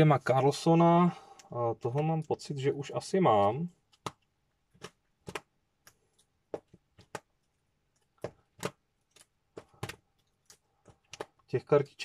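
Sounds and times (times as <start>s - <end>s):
cards clicking and snapping: 3.8s - 11.5s.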